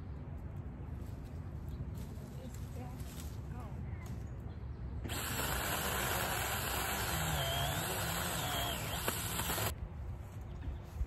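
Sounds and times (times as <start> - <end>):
mini chainsaw whining: 5.1 - 9.7.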